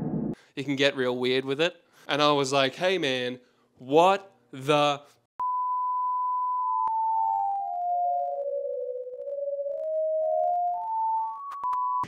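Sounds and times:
electronic beep tone: 5.4s - 8.5s.

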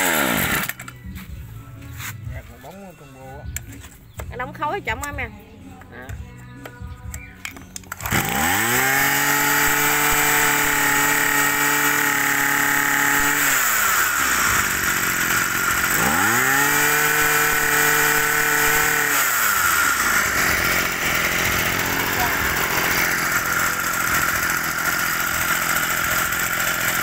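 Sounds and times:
brush cutter engine revving: 0.0s - 1.0s, 7.8s - 27.0s.

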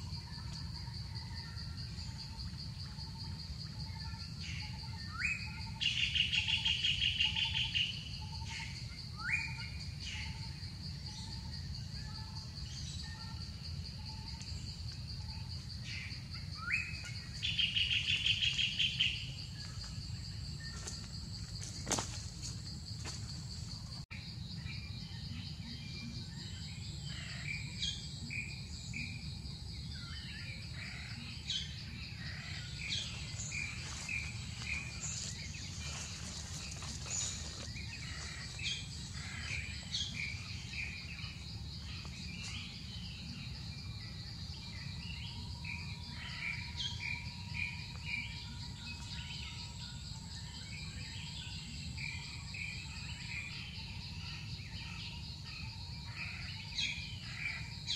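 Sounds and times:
high-pitched insect drone: 0.0s - 57.9s
birds chirping: 30.1s - 47.0s.

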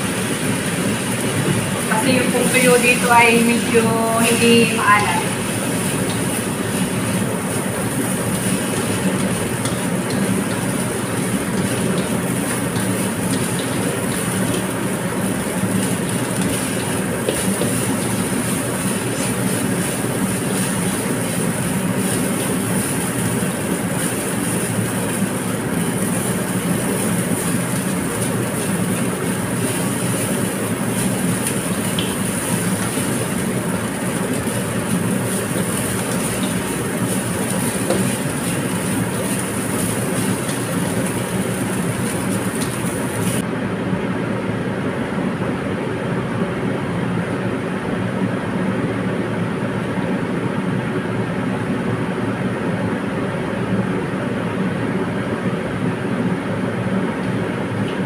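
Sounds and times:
hiss of frying: 0.0s - 43.5s.

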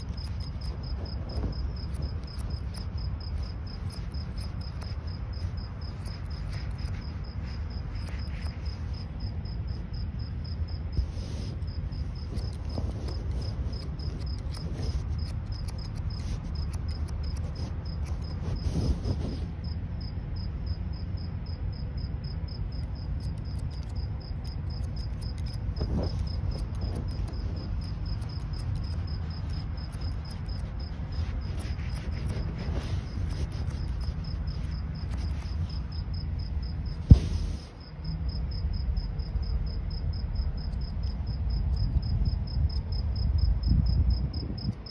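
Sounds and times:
scissors snipping hair: 0.0s - 7.1s, 12.1s - 18.6s, 23.1s - 35.8s
cricket chirping: 0.0s - 44.9s
low background rumble: 0.0s - 44.9s.

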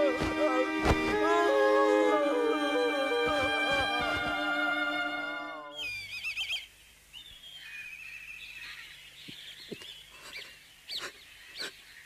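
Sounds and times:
birds chirping: 5.6s - 12.0s.

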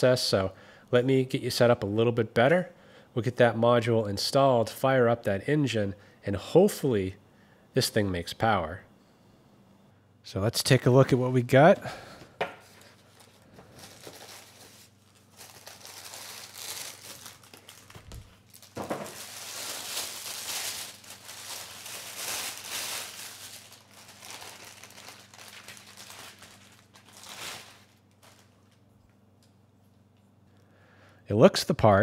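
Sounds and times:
plastic wrap crinkling: 12.6s - 29.0s.

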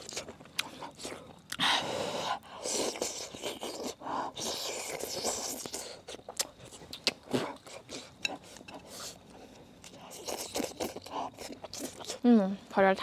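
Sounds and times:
person slurping and chewing: 2.2s - 12.2s.

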